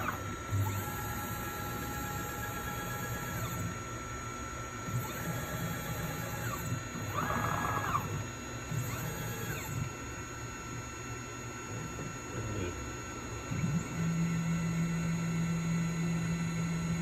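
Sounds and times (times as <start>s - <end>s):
stepper motors whining: 0.0s - 3.8s, 4.9s - 9.9s.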